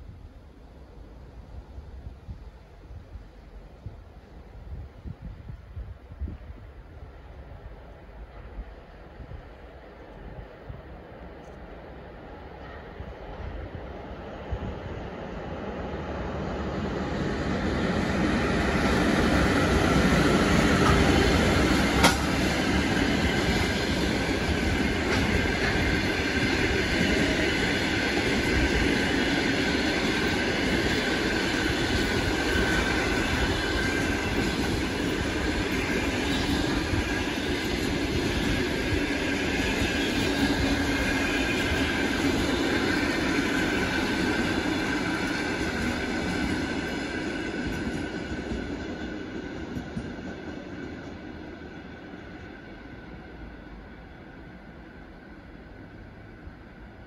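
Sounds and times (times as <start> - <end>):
train wheels rumbling and clattering: 1.0 - 57.0.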